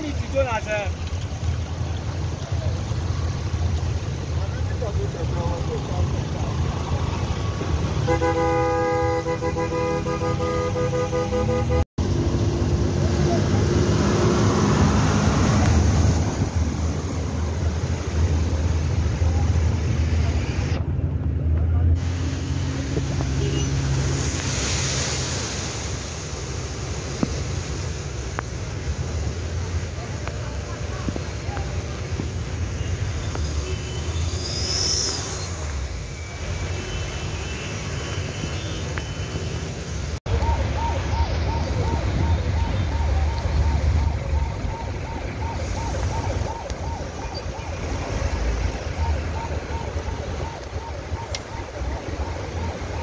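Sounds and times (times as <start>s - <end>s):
water splashing around wheels: 0.0s - 10.1s, 12.0s - 20.7s, 22.0s - 53.0s
traffic rumble: 0.0s - 53.0s
water spray hiss: 22.0s - 29.9s.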